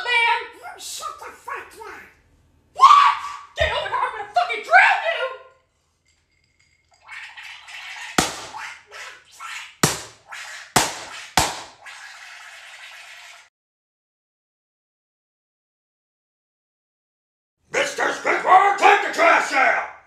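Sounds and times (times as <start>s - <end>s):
water running: 6.8s - 13.5s
sharp smacks in water: 8.2s - 8.6s, 9.8s - 10.2s, 10.8s - 11.8s.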